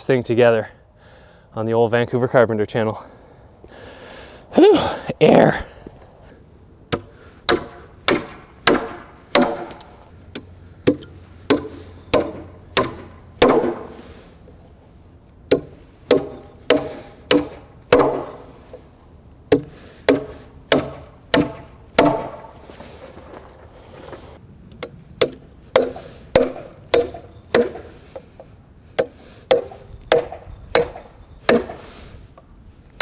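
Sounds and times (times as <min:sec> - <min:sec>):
hammer driving nails into wood: 0:06.9 - 0:09.9, 0:10.8 - 0:13.9, 0:15.5 - 0:18.4, 0:19.5 - 0:22.5, 0:25.2 - 0:27.9, 0:29.0 - 0:31.8.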